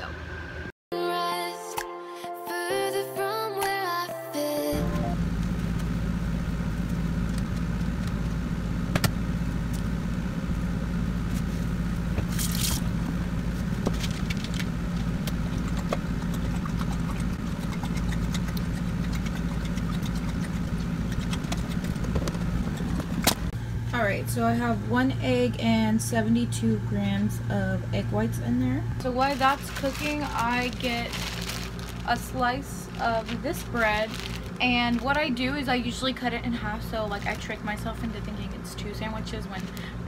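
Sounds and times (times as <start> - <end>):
air conditioner humming: 4.7 - 40.0
egg cracking: 14.0 - 23.5.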